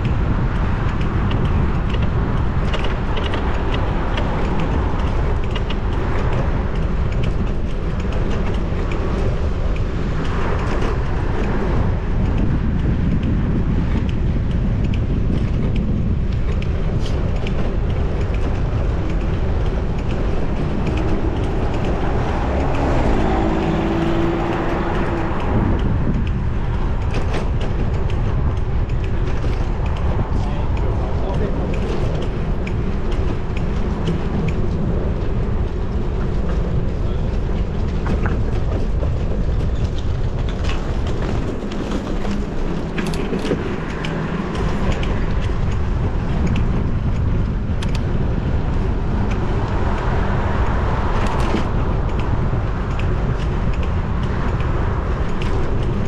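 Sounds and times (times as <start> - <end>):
road traffic passing: 0.0 - 56.0
wind buffeting microphone: 0.0 - 56.0.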